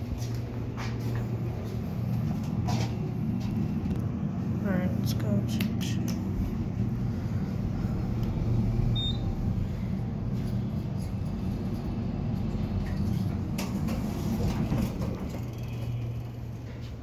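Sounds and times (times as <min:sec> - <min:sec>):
elevator hum: 0:00.0 - 0:17.0
short high beep: 0:09.0 - 0:09.3
elevator doors sliding open: 0:10.4 - 0:16.2.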